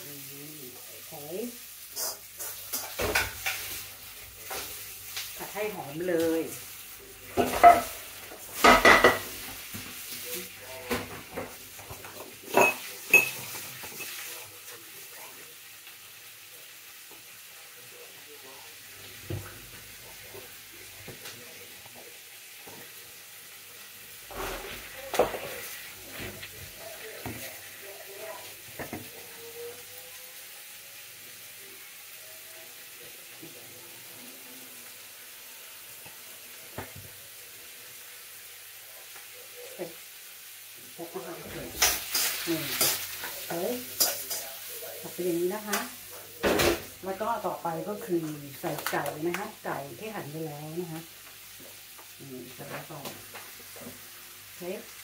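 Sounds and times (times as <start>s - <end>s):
onion and garlic sizzling: 0.0s - 55.0s.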